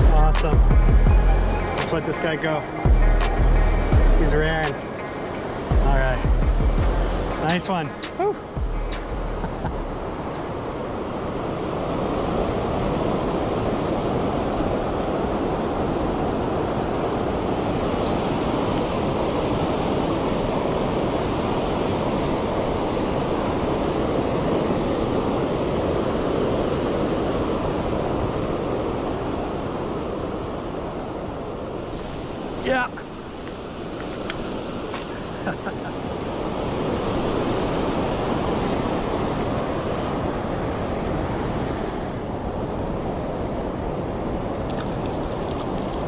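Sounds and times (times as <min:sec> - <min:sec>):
river water rushing: 0:00.0 - 0:46.0.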